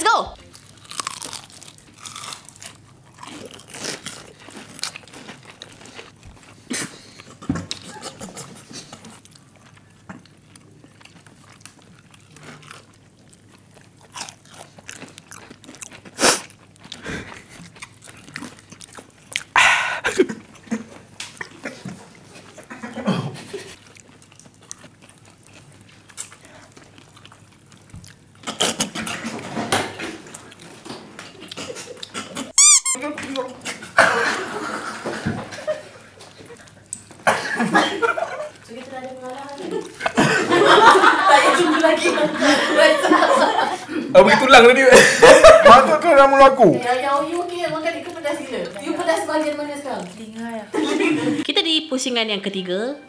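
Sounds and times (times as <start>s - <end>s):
fried chicken crunching: 0.4s - 19.6s, 23.8s - 30.8s, 35.7s - 42.0s, 46.8s - 50.7s
mouth sounds: 19.6s - 20.4s.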